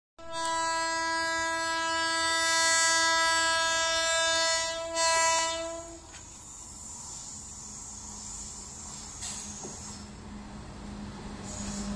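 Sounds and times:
train horn long blast: 0.2 - 6.1
oncoming train noise: 0.2 - 11.9.

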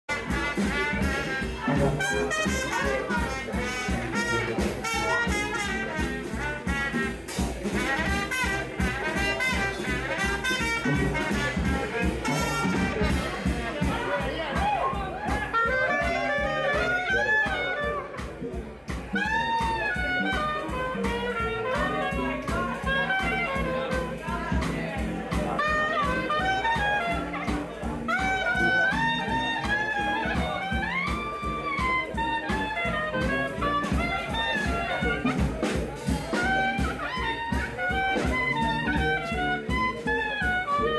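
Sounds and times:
jazz band playing: 0.0 - 40.9
clarinet lead: 0.1 - 40.9.

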